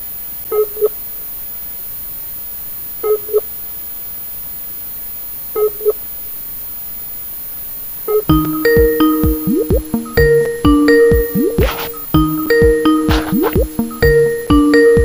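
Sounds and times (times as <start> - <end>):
background hiss: 0.0 - 15.0
two-note electronic ringing tone: 8.1 - 15.0.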